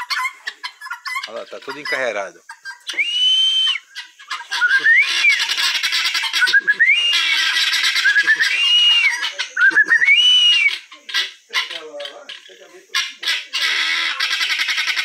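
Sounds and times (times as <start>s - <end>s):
guineafowl rattling chatter: 0.0s - 15.0s
whistle-like bird notes: 2.9s - 4.0s, 4.6s - 5.4s, 6.4s - 10.8s.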